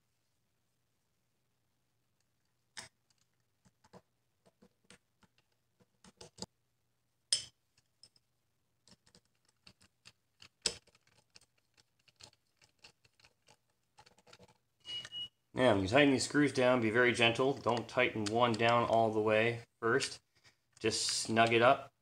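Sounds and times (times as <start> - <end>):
clicks and taps of plastic parts: 17.5 - 19.1.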